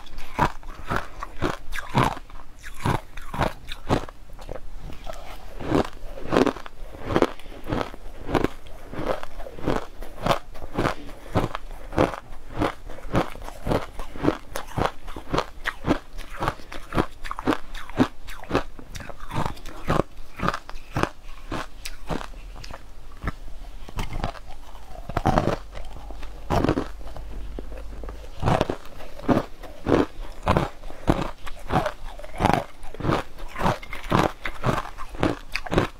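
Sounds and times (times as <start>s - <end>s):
crunching ice: 24.1s - 35.9s.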